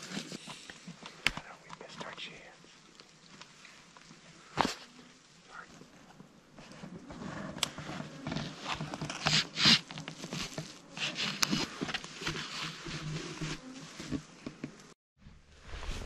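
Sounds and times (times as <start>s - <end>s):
clothing and brush rustling: 2.3s - 14.9s.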